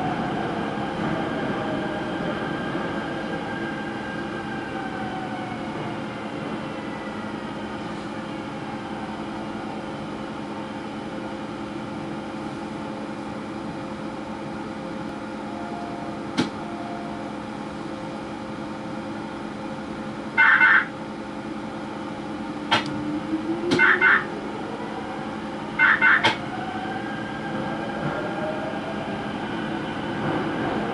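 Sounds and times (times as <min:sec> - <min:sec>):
low whine rising in pitch: 0:22.5 - 0:25.3
sharp click: 0:22.7 - 0:23.0.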